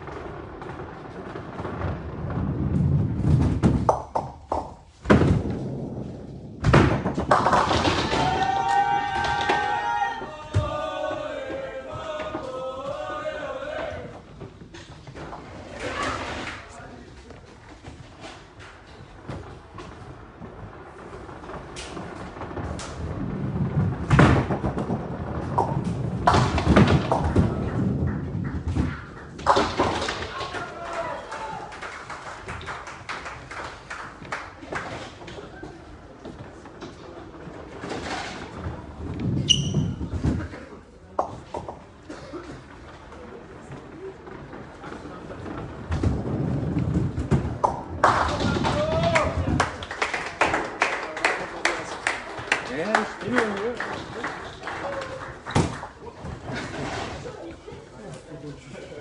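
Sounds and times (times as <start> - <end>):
bowling ball thud: 0.0 - 9.8, 19.2 - 30.6, 43.6 - 49.8
bowling balls rolling: 0.0 - 59.0.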